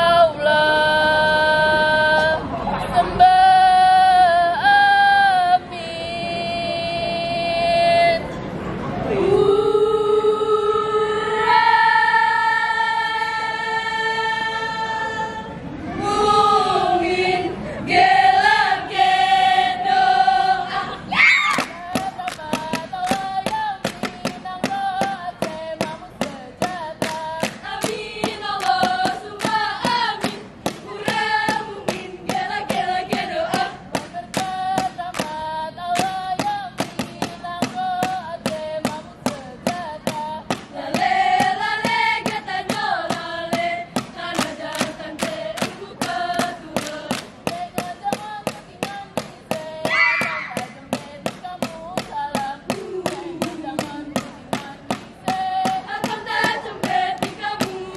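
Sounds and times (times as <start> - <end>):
group singing in unison: 0.0 - 8.2, 9.1 - 57.9
claps and body slaps: 21.5 - 39.4, 40.1 - 57.8
fast chant: 48.9 - 51.4, 52.0 - 57.9.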